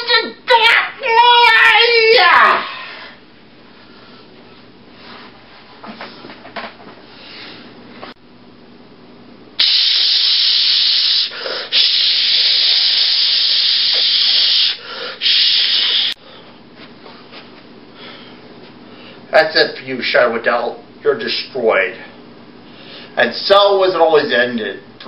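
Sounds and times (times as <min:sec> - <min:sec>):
loud steady hissing: 0:09.6 - 0:16.2.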